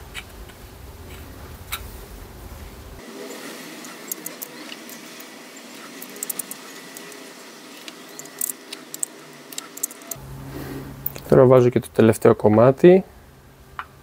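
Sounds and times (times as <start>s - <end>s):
metal clutch plates clicking: 3.9s - 5.3s, 5.9s - 10.2s.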